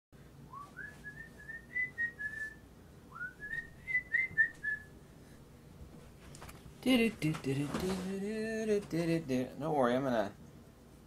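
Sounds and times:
person whistling a tune: 0.5s - 4.9s.

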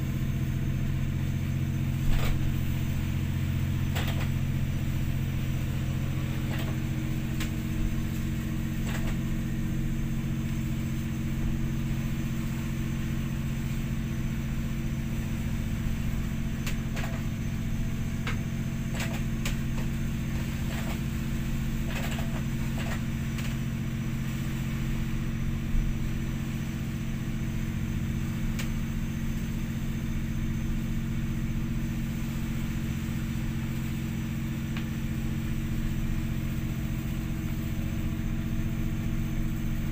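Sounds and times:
ship engine drone: 0.0s - 39.9s.

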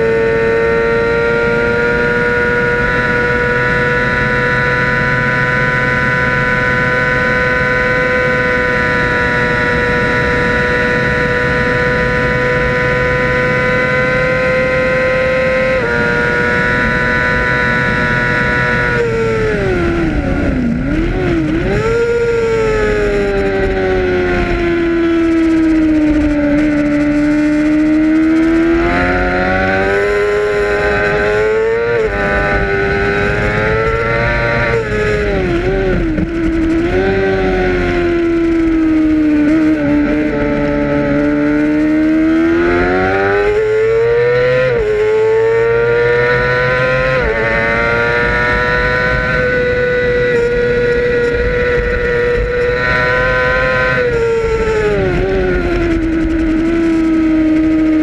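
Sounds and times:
racing motorcycle engine revving: 0.0s - 58.0s
wind rush: 46.3s - 58.0s.

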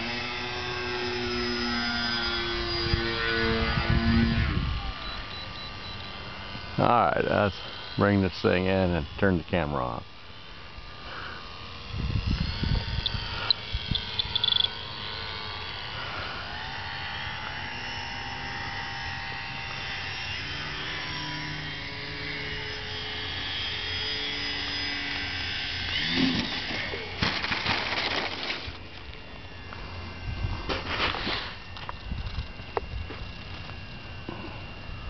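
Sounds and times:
electric model plane motor whining: 0.0s - 35.0s
crunching: 27.2s - 29.1s.

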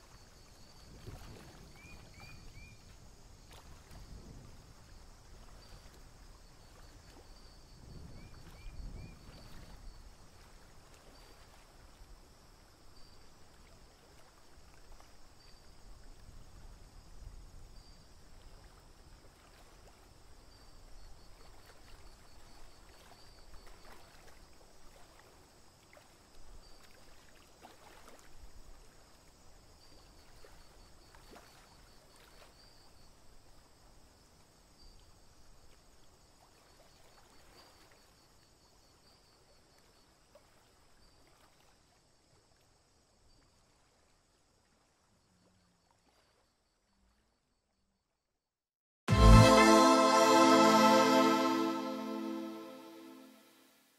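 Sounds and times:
low rushing noise: 49.1s - 53.5s.

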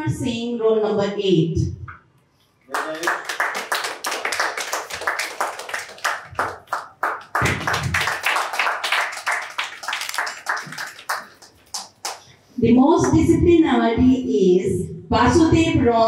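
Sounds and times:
audience clapping: 2.7s - 12.3s.

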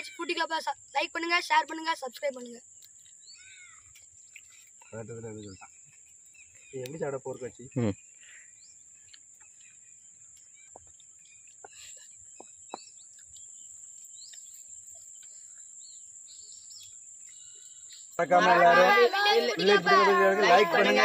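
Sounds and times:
bird chirps: 2.0s - 18.3s.

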